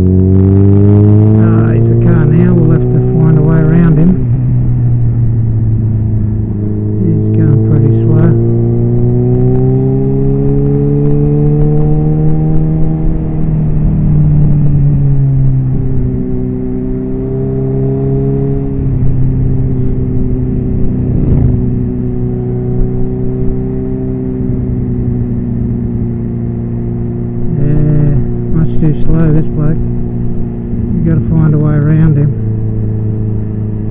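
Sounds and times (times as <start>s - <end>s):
low wind rumble: 0.0s - 33.9s
motorcycle engine running: 0.0s - 33.9s.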